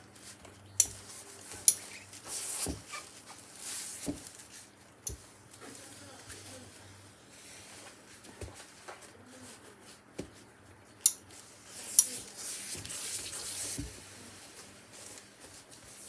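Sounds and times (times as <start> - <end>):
soft thumps of iron and fabric: 4.0 - 4.4.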